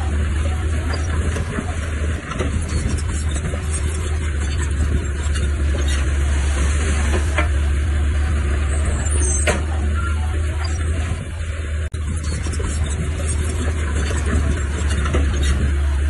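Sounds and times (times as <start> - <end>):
diesel engine drone: 0.0 - 16.0
high squeal: 8.6 - 11.0.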